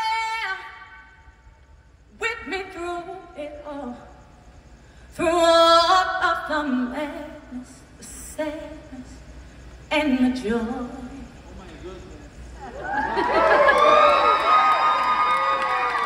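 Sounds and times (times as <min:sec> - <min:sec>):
woman singing through pa: 0:05.2 - 0:09.2, 0:09.9 - 0:11.2.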